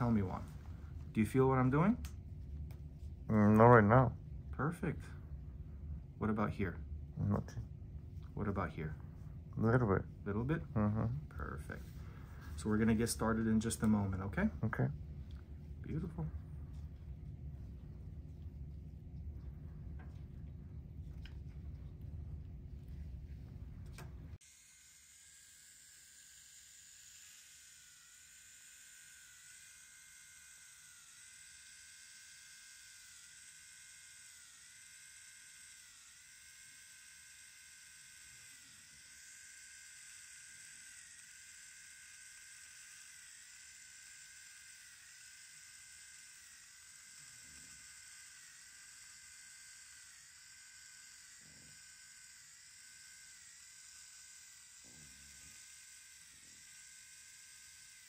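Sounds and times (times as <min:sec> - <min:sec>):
motorized punch whining: 0:47.0 - 0:58.0.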